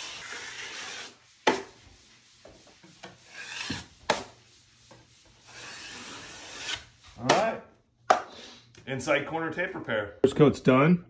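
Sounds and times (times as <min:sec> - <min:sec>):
taping knife scraping compound: 0:00.0 - 0:01.8, 0:02.9 - 0:07.6.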